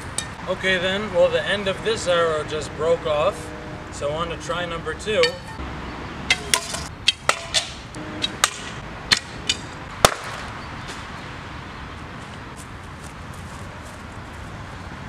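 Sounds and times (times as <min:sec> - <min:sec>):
arrow striking package: 0:06.3 - 0:10.5.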